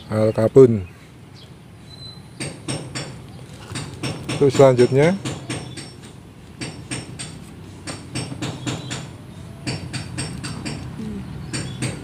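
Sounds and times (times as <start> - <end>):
sharp metallic taps: 2.4 - 12.0.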